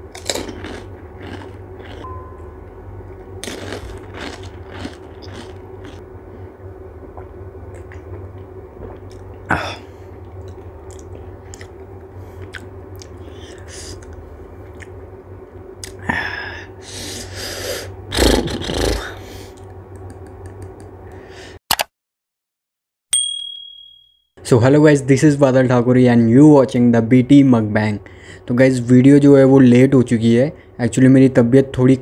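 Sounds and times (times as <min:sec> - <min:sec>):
crunching and chewing: 0:00.0 - 0:02.1, 0:03.4 - 0:06.0, 0:10.2 - 0:15.0
steady low hum: 0:00.0 - 0:21.6, 0:24.4 - 0:32.0
mouth noises: 0:18.1 - 0:19.2.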